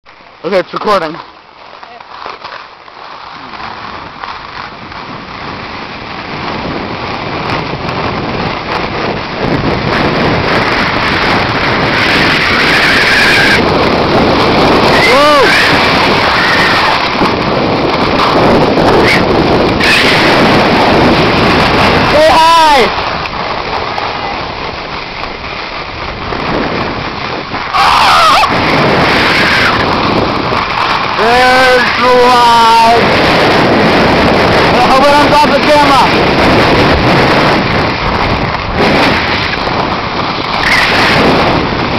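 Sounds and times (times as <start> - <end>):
wind rushing over microphone: 0.1 - 41.9
person yelling: 14.9 - 15.8, 22.1 - 22.9, 27.7 - 28.5, 31.2 - 33.0.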